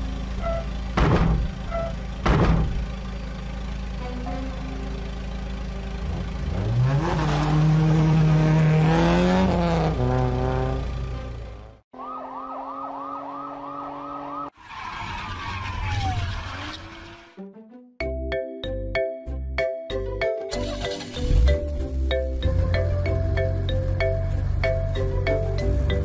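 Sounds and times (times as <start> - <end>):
car engine revving: 0.0 - 14.5
siren yelping: 11.9 - 17.0.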